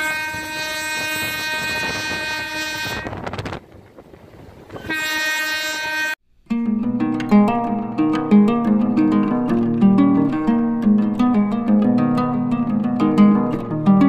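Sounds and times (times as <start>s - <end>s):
train horn blasts: 0.0s - 3.3s, 4.8s - 6.2s.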